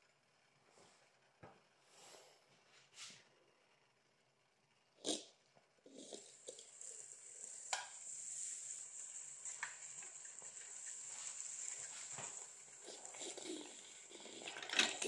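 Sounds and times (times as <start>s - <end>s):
steam hissing: 5.9s - 15.0s.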